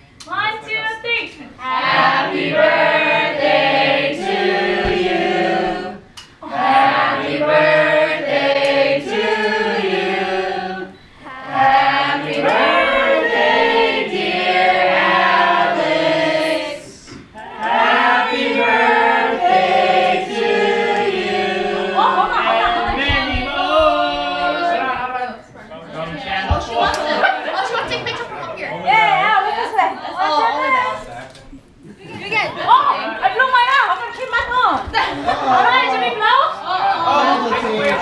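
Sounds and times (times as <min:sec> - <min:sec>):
group of people singing: 0:01.6 - 0:25.2, 0:25.9 - 0:27.8.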